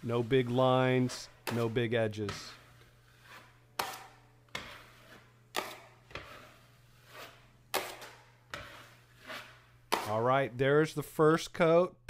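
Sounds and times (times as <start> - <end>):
taping knife scraping compound: 0.0 - 10.4.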